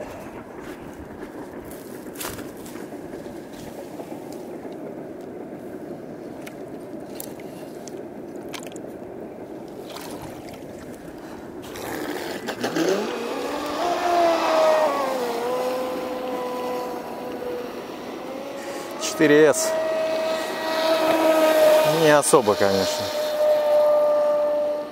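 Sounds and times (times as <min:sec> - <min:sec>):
electric motor whine: 0:11.6 - 0:24.9.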